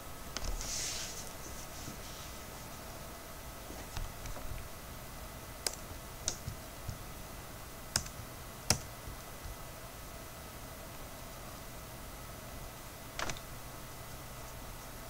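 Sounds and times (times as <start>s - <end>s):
faint background hum: 0.0s - 15.0s
computer mouse clicks: 5.6s - 7.0s.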